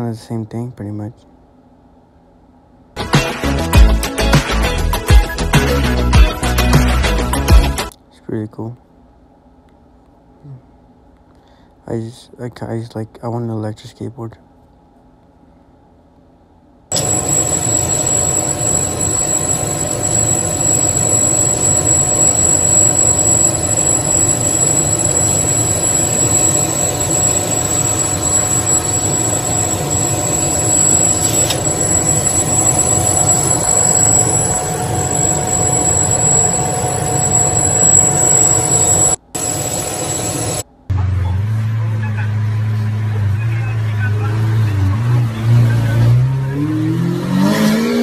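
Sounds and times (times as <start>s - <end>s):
cutting machine whirring: 16.9s - 40.6s.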